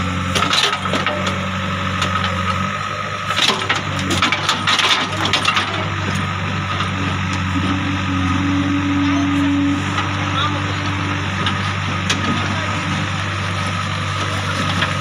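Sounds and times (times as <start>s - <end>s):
diesel engine running: 0.0s - 15.0s
steady whine: 4.4s - 15.0s.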